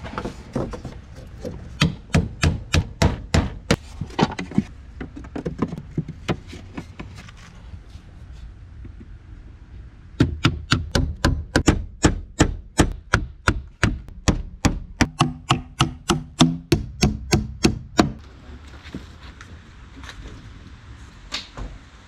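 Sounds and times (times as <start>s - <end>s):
hammer nailing wooden planks: 1.8s - 3.8s, 10.2s - 18.2s.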